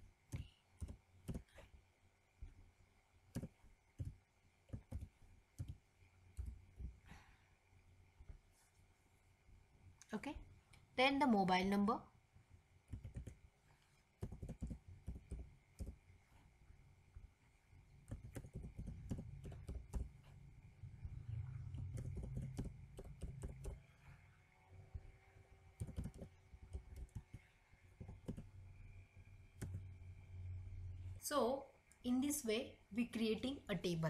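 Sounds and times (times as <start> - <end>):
typing on a keyboard: 0.3 - 1.6, 3.3 - 5.8, 12.9 - 13.4, 14.2 - 16.0, 18.1 - 20.1, 21.8 - 23.8, 25.8 - 27.4, 28.0 - 28.5
low rumble: 20.6 - 22.2.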